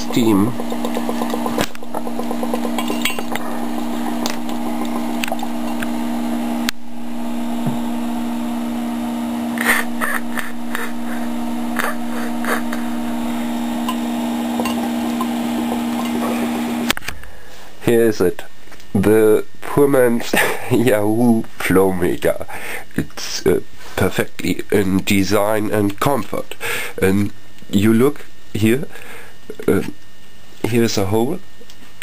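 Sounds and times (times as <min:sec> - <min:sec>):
gas bubbling through liquid: 0:00.0 - 0:06.7
steady low hum: 0:00.0 - 0:31.6.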